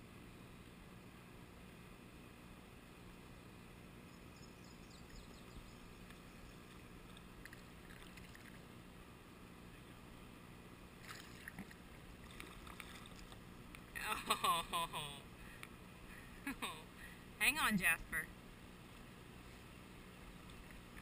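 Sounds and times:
water lapping at a kayak: 0:05.0 - 0:08.8, 0:11.0 - 0:13.8
paddle splashes: 0:11.0 - 0:13.4.

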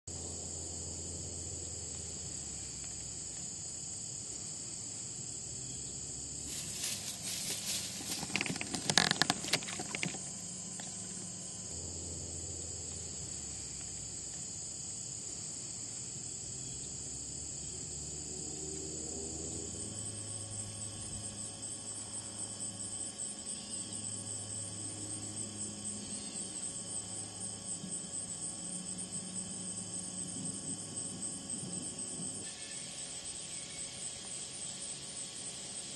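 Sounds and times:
crickets trilling: 0:00.1 - 0:35.9
rustling and knocks: 0:06.5 - 0:11.3.

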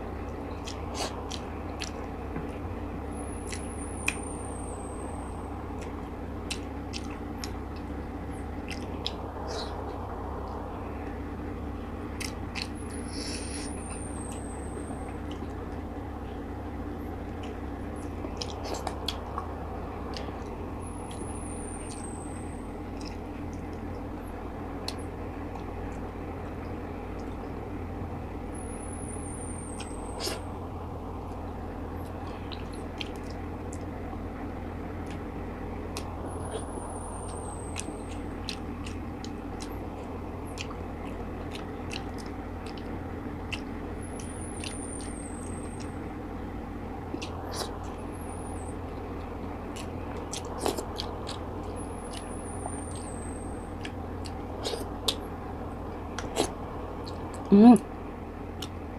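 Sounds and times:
low hum and hiss: 0:00.0 - 0:58.9
person chewing: 0:00.6 - 0:02.6, 0:03.5 - 0:04.2, 0:05.8 - 0:07.9, 0:08.6 - 0:10.0, 0:12.2 - 0:14.4, 0:17.3 - 0:19.5, 0:29.8 - 0:30.5, 0:35.9 - 0:45.2, 0:47.1 - 0:48.0, 0:48.8 - 0:55.3, 0:55.9 - 0:57.5
mouth clicks and smacks: 0:05.8 - 0:07.6, 0:08.6 - 0:09.8, 0:40.5 - 0:45.1, 0:49.6 - 0:52.3, 0:53.8 - 0:55.2, 0:56.1 - 0:57.5, 0:58.6 - 0:58.8.

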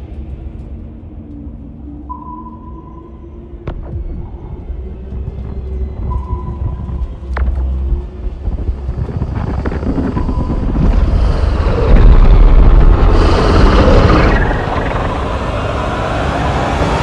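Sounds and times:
wind noise: 0:03.6 - 0:17.0
aircraft engines droning: 0:10.3 - 0:17.0.

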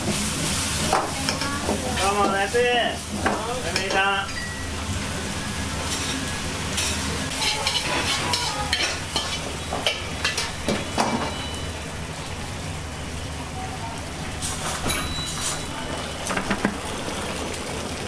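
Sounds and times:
food sizzling in a wok: 0:00.0 - 0:18.0
metal ladle scraping wok: 0:05.8 - 0:10.5.

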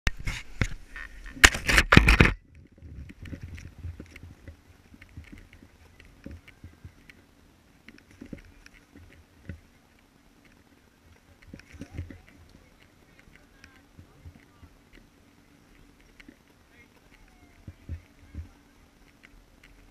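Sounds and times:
camera handling knocks and rubbing: 0:00.2 - 0:02.4
faint clicks and taps: 0:00.3 - 0:19.9.

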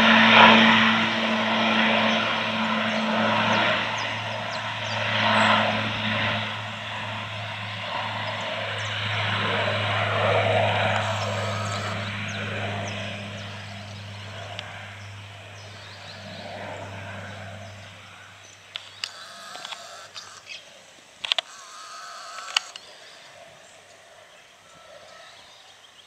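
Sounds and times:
propeller aircraft drone: 0:00.0 - 0:26.0
bird chirps: 0:10.9 - 0:20.7
clicks: 0:18.7 - 0:20.5, 0:21.2 - 0:21.6, 0:22.3 - 0:22.9.

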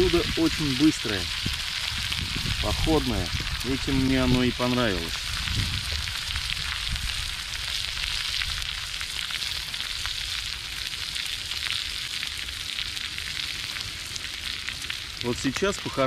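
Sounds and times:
eggs sizzling in a pan: 0:00.0 - 0:16.0
low rumble: 0:01.3 - 0:08.7.

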